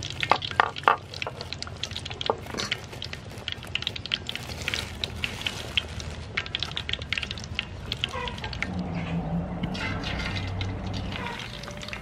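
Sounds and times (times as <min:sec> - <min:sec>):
hot oil sizzling in a wok: 0:00.0 - 0:08.6
plastic sheet crinkling: 0:02.2 - 0:08.4.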